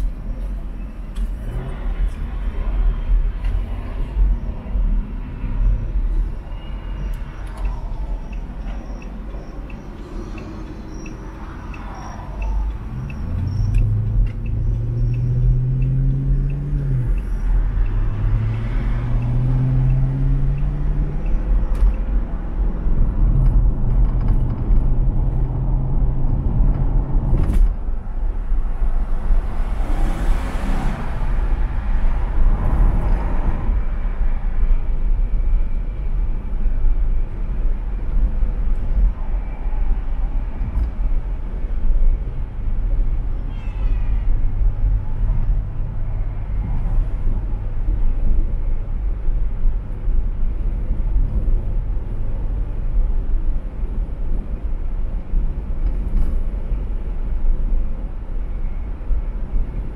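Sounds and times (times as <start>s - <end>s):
car engine: 0.0s - 43.4s
road rumble: 0.0s - 59.9s.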